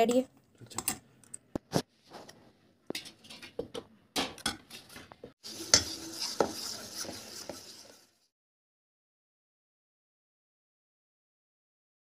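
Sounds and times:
metal spoon scraping batter in bowl: 4.8s - 8.2s.

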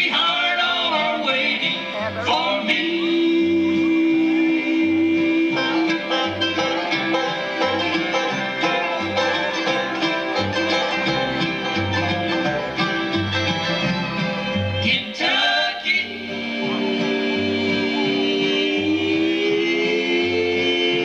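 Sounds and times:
person singing: 0.0s - 7.2s, 14.8s - 21.0s
fast banjo picking: 0.0s - 15.2s, 16.0s - 21.0s
mandolin picking: 0.0s - 15.4s, 16.0s - 21.0s
upright bass notes: 0.0s - 21.0s.

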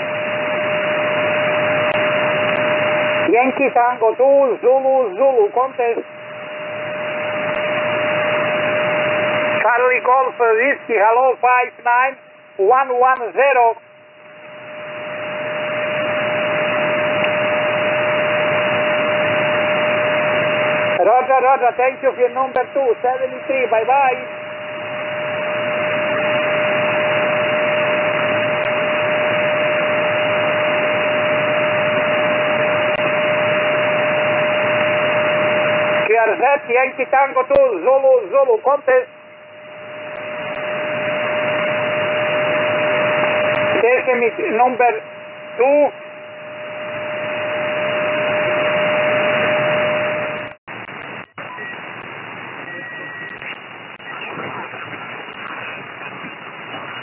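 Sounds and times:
radio band noise hiss: 0.0s - 57.0s
steady radio whistle: 0.0s - 57.0s
carrier tone whistle: 39.0s - 52.0s, 52.6s - 54.4s.

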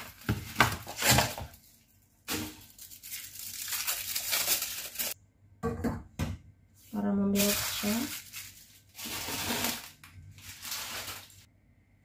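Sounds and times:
paper wrapper tearing and crinkling: 0.0s - 1.6s, 2.3s - 5.2s, 7.4s - 11.5s.

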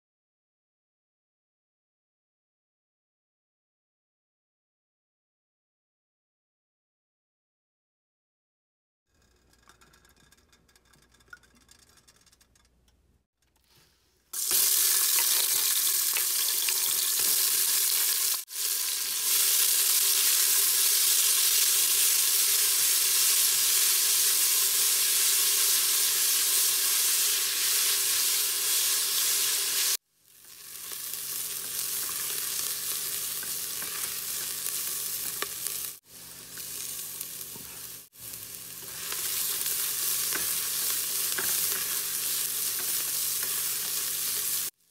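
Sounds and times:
onion sizzling in hot oil: 14.4s - 44.9s
spatula stirring in metal pot: 30.4s - 44.7s.

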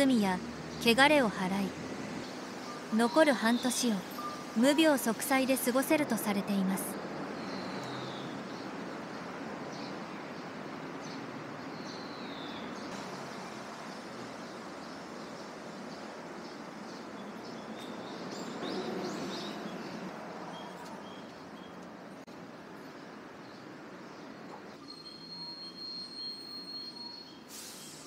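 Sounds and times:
vehicle passing: 0.0s - 3.0s
city traffic hum: 0.0s - 28.0s.

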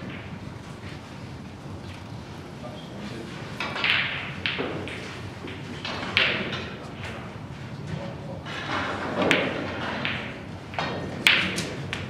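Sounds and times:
low chatter in hall: 1.1s - 9.5s
billiard balls clicking: 3.6s - 7.2s, 8.6s - 12.0s
cue tip striking ball: 3.6s - 7.2s, 8.8s - 12.0s.

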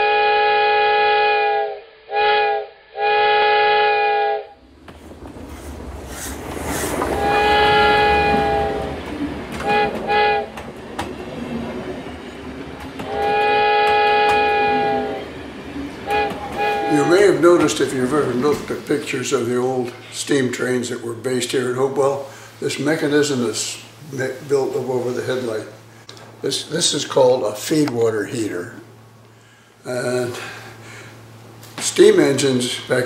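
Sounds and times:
locomotive chime whistle blasts: 0.0s - 4.5s, 7.2s - 8.9s, 9.6s - 10.5s, 13.1s - 15.3s, 16.0s - 17.4s
moving train rumble and rattle: 4.4s - 21.8s.

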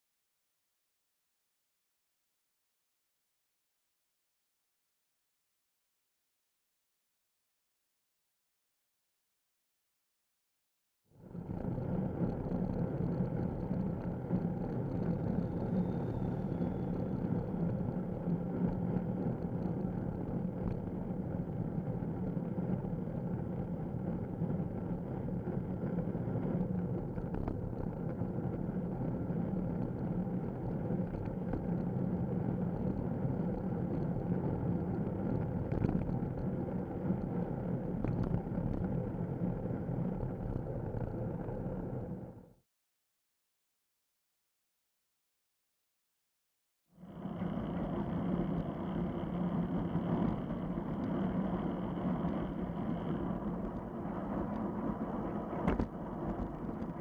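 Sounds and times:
wind rumble on microphone: 11.2s - 42.4s, 47.0s - 57.0s
bicycle road noise: 12.0s - 42.3s, 47.0s - 57.0s.

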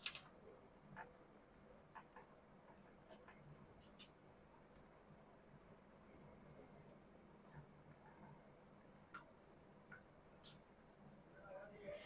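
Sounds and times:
high-pitched electronic beeps: 6.1s - 6.9s, 8.1s - 8.6s.

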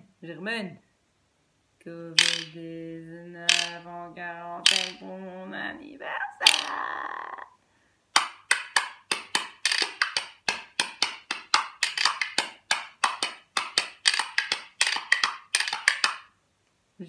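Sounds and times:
wooden spoons clacking: 2.2s - 2.6s, 3.5s - 3.8s, 4.7s - 5.0s, 6.4s - 6.8s, 8.2s - 16.3s.

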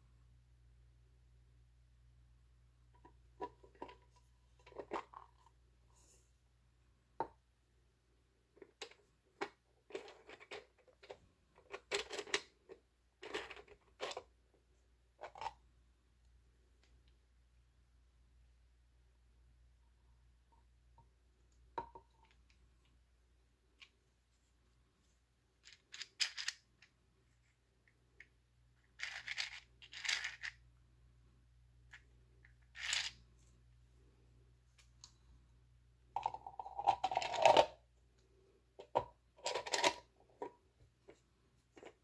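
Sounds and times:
faint low hum: 0.0s - 42.0s
plastic parts scraping: 8.7s - 14.3s, 29.0s - 30.6s, 38.8s - 42.0s.

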